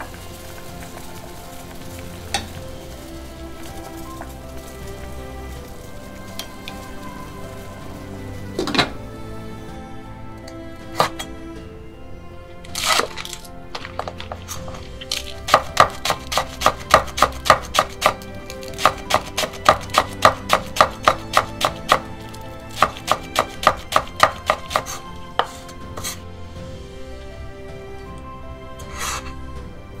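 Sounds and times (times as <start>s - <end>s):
rustle of onions: 0.0s - 9.8s, 12.6s - 29.8s
knife chopping on wooden board: 15.5s - 18.2s, 18.8s - 22.0s, 22.8s - 26.2s.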